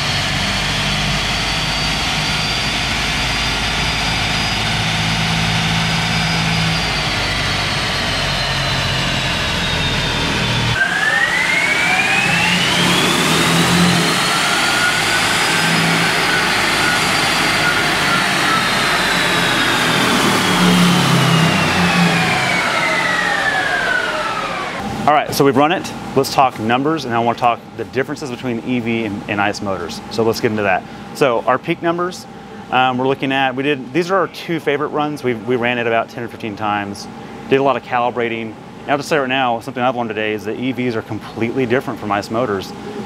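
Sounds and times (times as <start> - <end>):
electric motors and rollers whining: 0.0 - 25.5, 42.4 - 43.0.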